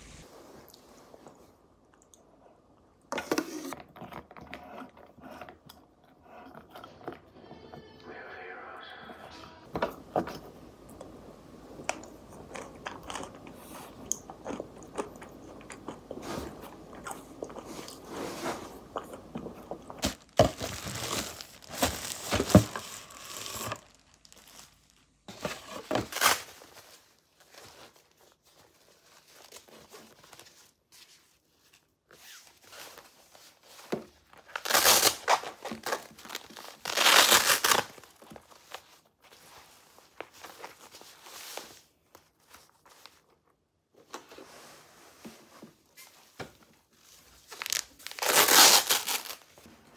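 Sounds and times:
paper-like rustling: 9.7 - 49.9
velcro ripping open: 20.0 - 25.2, 25.9 - 26.5, 34.5 - 38.2, 47.5 - 49.7.

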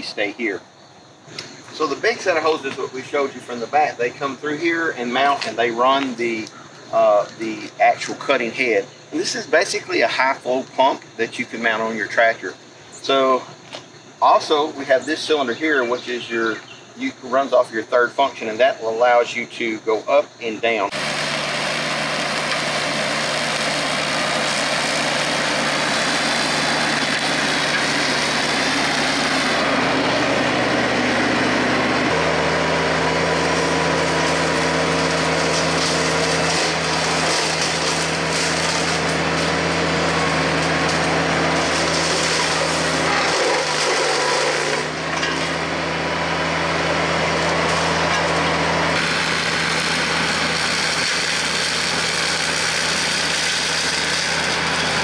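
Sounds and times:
tractor diesel engine under load: 1.2 - 10.0, 20.8 - 55.0
rotary cutter chopping brush: 20.9 - 55.0.

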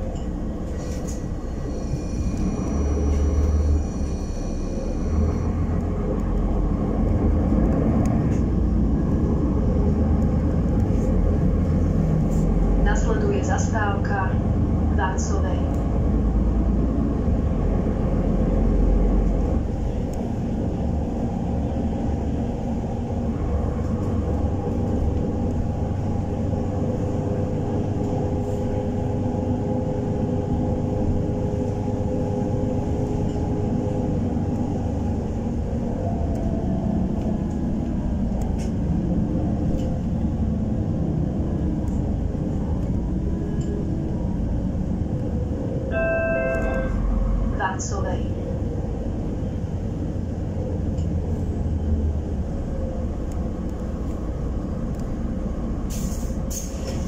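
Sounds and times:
bus engine and road rumble: 0.0 - 57.0
humming tone: 45.9 - 47.5.

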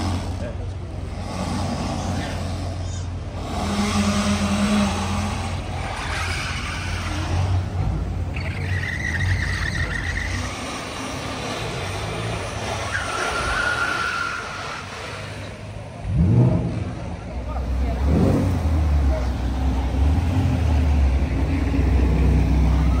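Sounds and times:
traffic engines rumbling: 0.0 - 23.0.

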